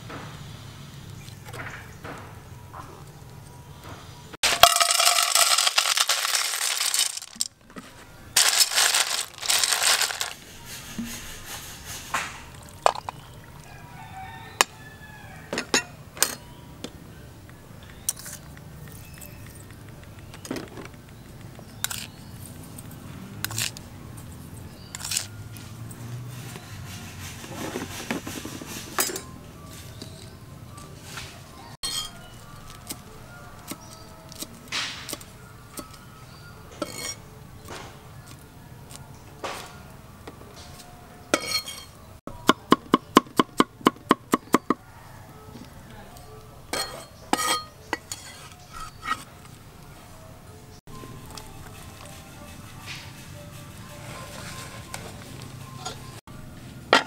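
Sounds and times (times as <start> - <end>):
spoon clinking on metal pot: 31.8 - 32.3, 36.8 - 37.2, 41.3 - 42.0, 46.7 - 49.2.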